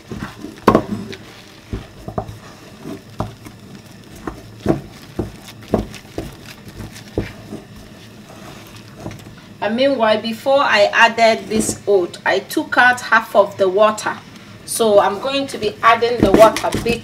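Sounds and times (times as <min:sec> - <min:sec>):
wooden spoon knocking metal pot: 0:03.2 - 0:03.5, 0:04.2 - 0:07.6, 0:16.2 - 0:17.0.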